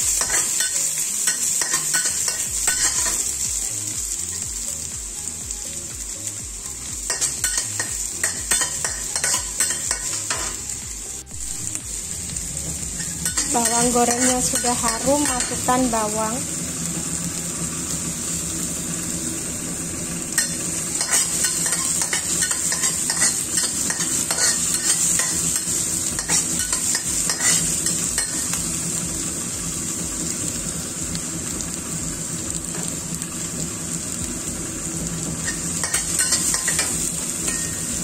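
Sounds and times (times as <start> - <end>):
onion and garlic sizzling in oil: 0.0 - 38.0
metal spatula scraping wok: 20.4 - 28.5.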